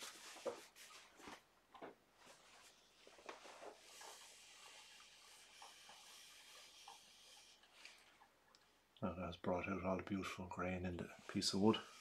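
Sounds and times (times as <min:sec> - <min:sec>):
paper towel rustling: 0:00.0 - 0:01.5
towel rubbing hiss: 0:02.4 - 0:08.0.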